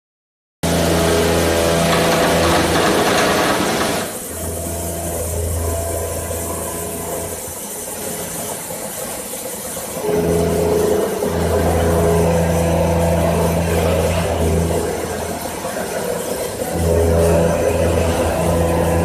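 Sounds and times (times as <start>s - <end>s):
low machine hum: 0.6s - 19.0s
milling cutter cutting steel: 0.7s - 5.7s.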